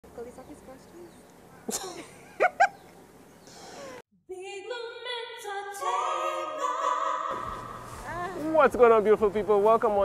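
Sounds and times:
a cappella intro music: 0:04.3 - 0:08.8.

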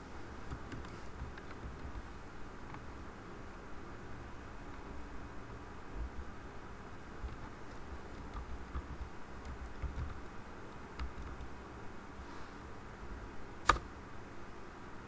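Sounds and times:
low steady hiss: 0:00.0 - 0:15.0
keyboard key clicks: 0:11.0 - 0:11.5, 0:13.6 - 0:13.9
loud sharp click: 0:13.6 - 0:13.9.

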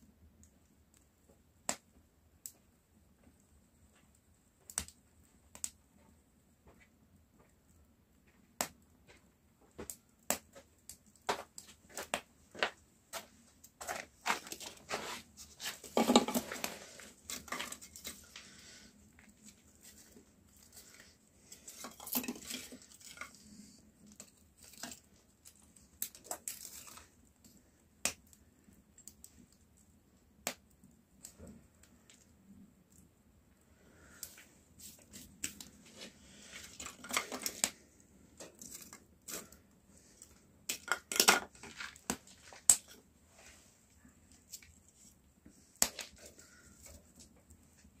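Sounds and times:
rustling and crinkling: 0:05.3 - 0:27.7, 0:34.0 - 0:48.0.

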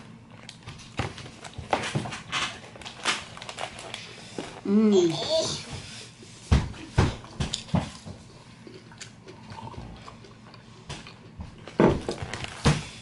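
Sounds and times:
soft chewing: 0:07.2 - 0:12.4.

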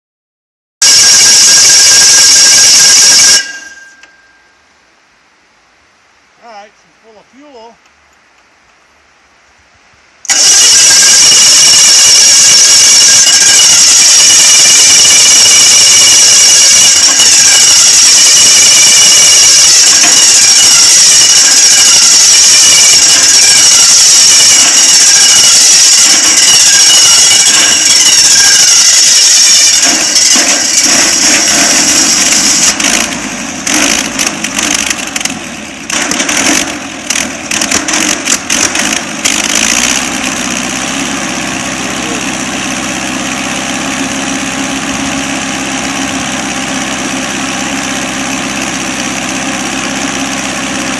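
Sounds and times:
sawmill engine running: 0:10.2 - 0:50.9.

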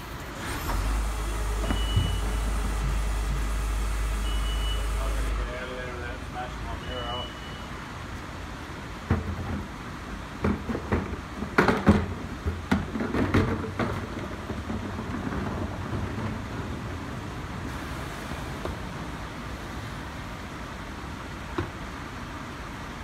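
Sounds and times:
garbage truck clanks and bangs: 0:00.0 - 0:05.4, 0:08.9 - 0:17.8
garbage truck engine rumble: 0:00.0 - 0:23.0.

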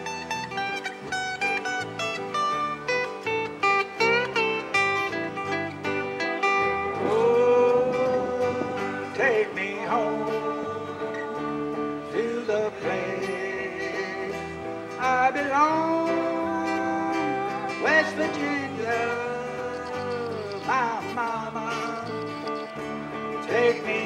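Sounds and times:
electric guitar: 0:00.0 - 0:24.0
strummed acoustic guitars: 0:00.0 - 0:24.0
electric bass: 0:01.8 - 0:13.4.

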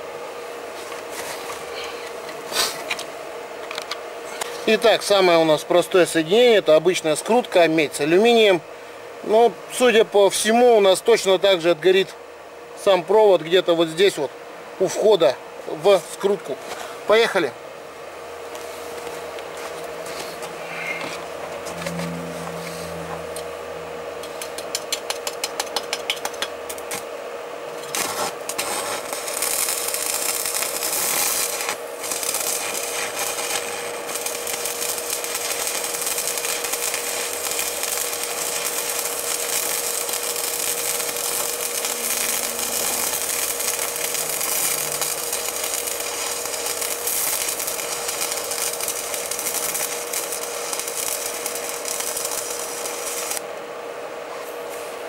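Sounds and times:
steady electrical hum: 0:00.0 - 0:55.0
rapid electrical clicks: 0:24.2 - 0:27.1, 0:27.8 - 0:53.4
wire crackling hiss: 0:27.8 - 0:53.5.

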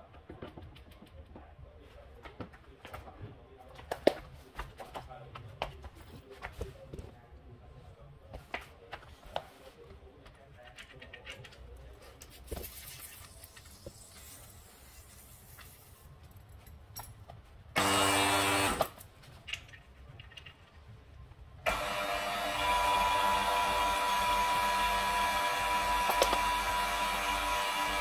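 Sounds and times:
vacuum pump running: 0:21.7 - 0:28.0.

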